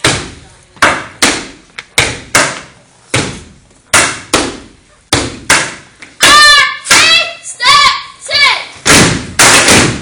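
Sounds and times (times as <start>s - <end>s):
group stomping and clapping: 8.8s - 10.0s.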